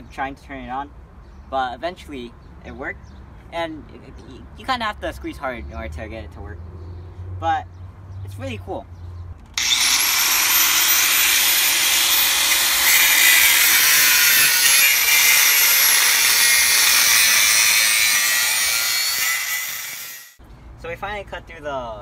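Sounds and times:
angle grinder motor whining: 0:09.6 - 0:20.4
disc grinding through steel: 0:09.6 - 0:20.4.

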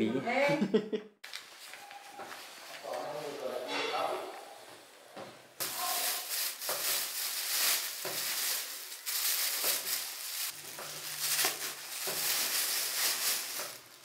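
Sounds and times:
plastic bags crinkling: 0:05.6 - 0:14.0.

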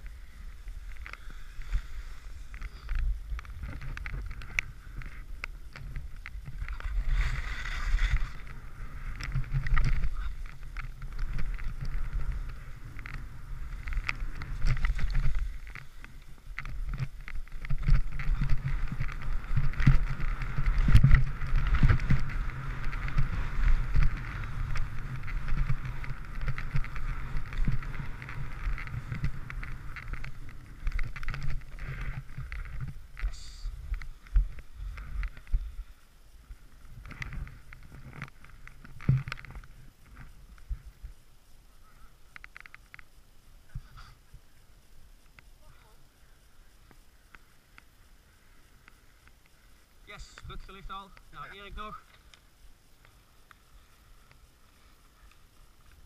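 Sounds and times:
skis scraping over snow: 0:00.0 - 0:35.9, 0:53.0 - 0:56.0
wind buffeting microphone: 0:02.4 - 0:41.1.

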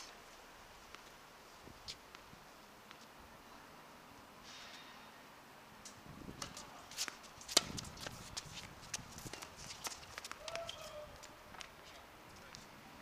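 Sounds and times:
footsteps on hard court: 0:06.4 - 0:11.8.

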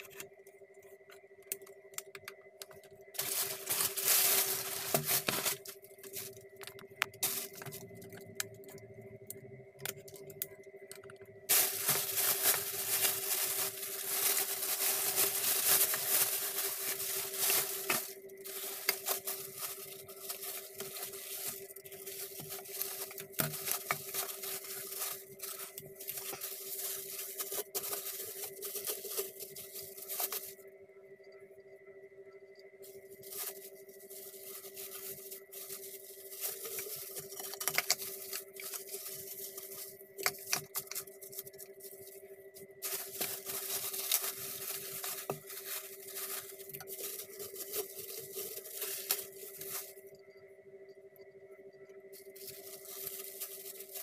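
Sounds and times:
steady hum: 0:00.0 - 0:54.0
plastic bag rustling and tearing: 0:03.1 - 0:08.4, 0:11.5 - 0:30.6, 0:33.2 - 0:42.2, 0:42.8 - 0:50.0, 0:52.2 - 0:54.0.

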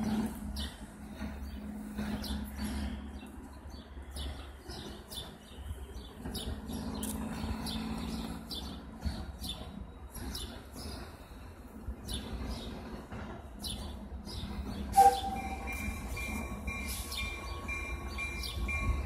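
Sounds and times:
small birds chirping: 0:00.5 - 0:19.0.

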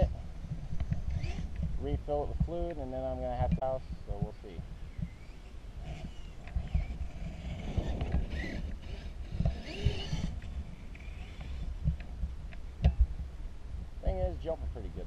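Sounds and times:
wind buffeting microphone: 0:00.0 - 0:15.0
distant rc truck motor whining: 0:00.8 - 0:01.6, 0:04.9 - 0:11.8.

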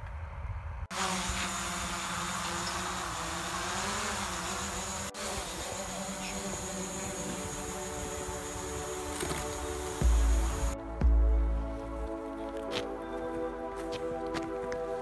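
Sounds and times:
drone propellers buzzing: 0:00.9 - 0:10.8.

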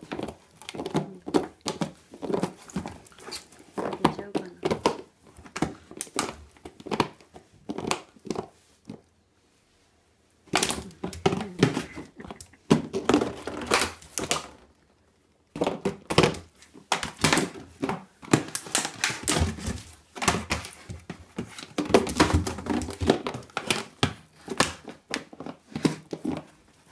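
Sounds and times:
plastic bottle crinkling: 0:00.0 - 0:09.1, 0:10.4 - 0:26.9
plastic bottle knocking: 0:10.5 - 0:14.4.

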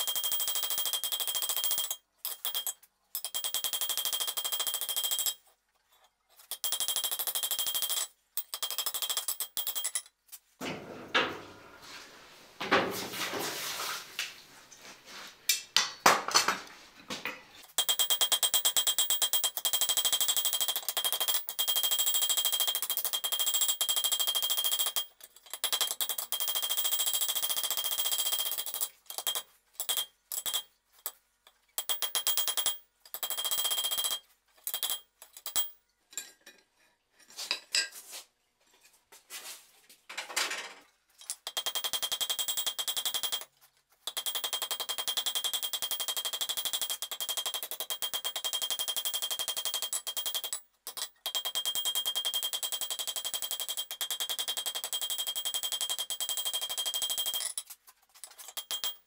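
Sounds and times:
metal clanks: 0:10.6 - 0:11.8.

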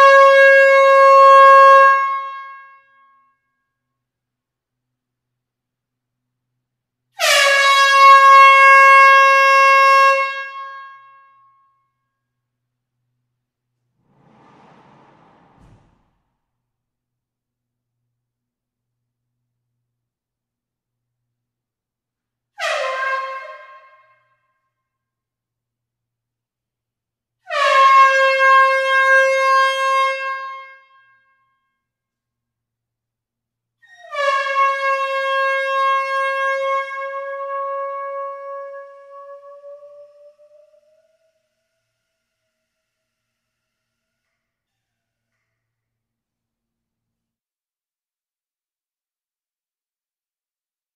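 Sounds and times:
horn long blast: 0:13.9 - 0:16.4.

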